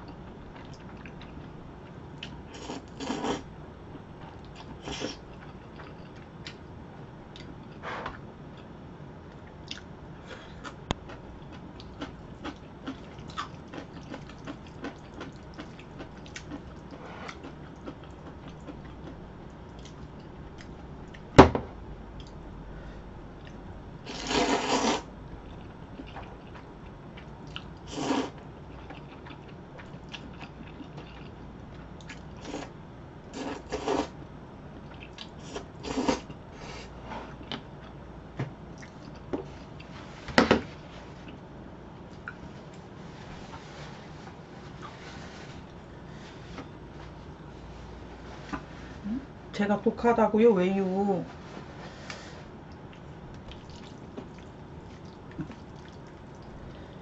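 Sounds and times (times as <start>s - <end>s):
slurping noodles: 2.6s - 3.4s, 24.1s - 25.1s, 27.9s - 28.4s, 33.4s - 34.1s, 35.5s - 36.3s
chewing with wet mouth clicks: 9.4s - 9.9s, 10.6s - 20.0s, 25.4s - 27.8s, 28.7s - 32.3s, 38.7s - 39.9s, 52.7s - 56.5s.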